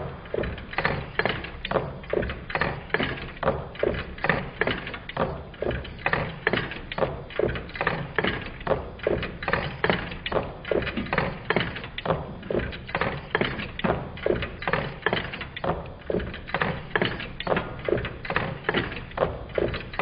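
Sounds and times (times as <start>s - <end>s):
engine displacers knocking: 0.2s - 20.0s
metal linkage clattering: 0.3s - 20.0s.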